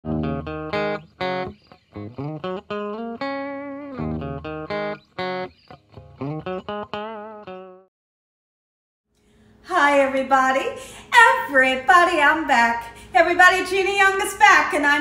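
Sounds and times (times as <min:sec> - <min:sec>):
plucked guitar melody: 0:00.0 - 0:07.9.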